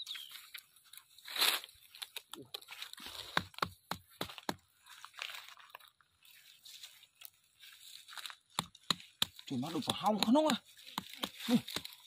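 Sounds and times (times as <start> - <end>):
footsteps crunching dry leaves: 0.0 - 12.0.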